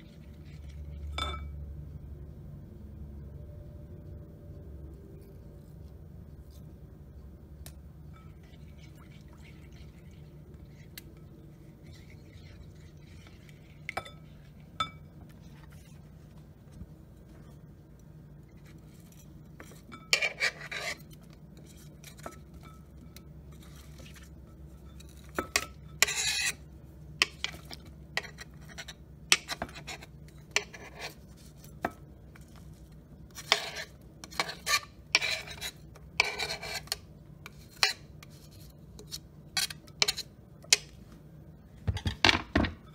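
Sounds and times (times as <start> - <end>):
low steady hum: 0.0 - 42.9
glass bowl clinking: 0.6 - 1.6, 12.2 - 15.2
spatula scraping a cutting board: 18.6 - 22.4, 23.5 - 31.8, 33.3 - 40.3.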